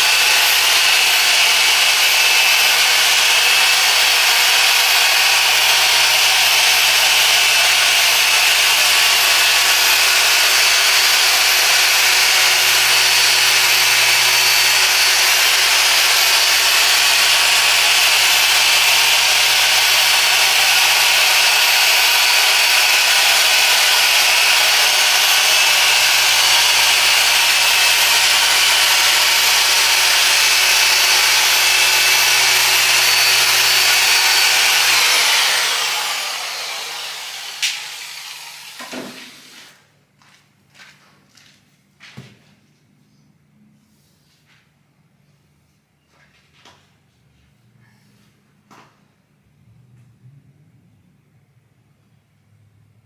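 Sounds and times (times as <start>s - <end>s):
machine polisher whirring: 0.0s - 39.7s.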